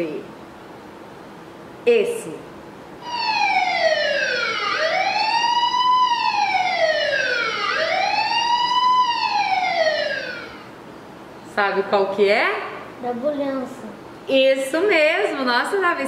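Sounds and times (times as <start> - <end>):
ambulance siren wailing: 3.0 - 10.7.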